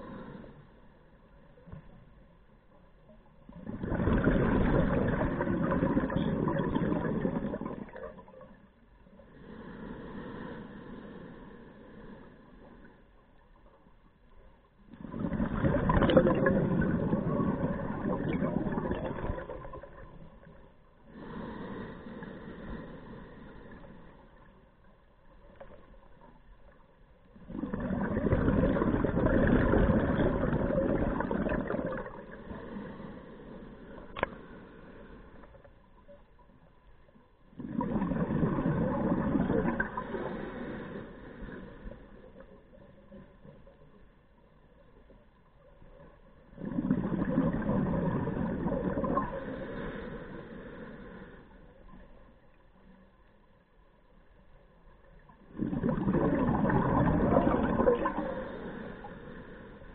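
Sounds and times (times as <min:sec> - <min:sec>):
exhaled bubbles rushing: 0:03.5 - 0:08.6, 0:14.9 - 0:20.7, 0:27.3 - 0:32.8, 0:37.5 - 0:40.5, 0:46.5 - 0:49.8, 0:55.3 - 0:58.8
regulator inhalations: 0:09.3 - 0:12.9, 0:21.1 - 0:24.3, 0:40.0 - 0:42.2.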